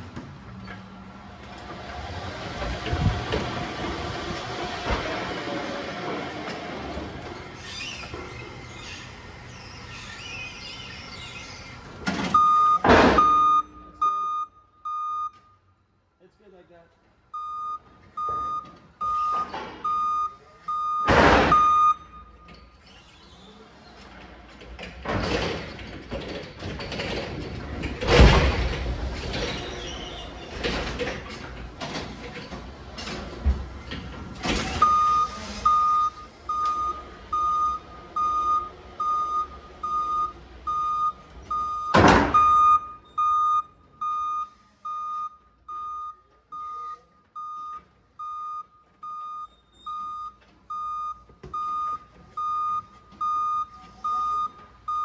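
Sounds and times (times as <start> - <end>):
forklift rattling and clanking: 0.0 - 13.8, 21.1 - 43.3
loud clunk: 12.0 - 13.5, 21.0 - 21.7, 41.9 - 42.6
forklift warning beeper: 12.4 - 15.7, 17.3 - 24.0, 34.6 - 55.0.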